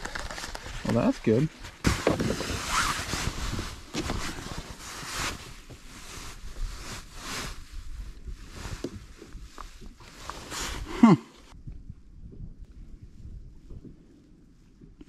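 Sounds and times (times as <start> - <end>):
rustling and handling noise: 0.0 - 10.9.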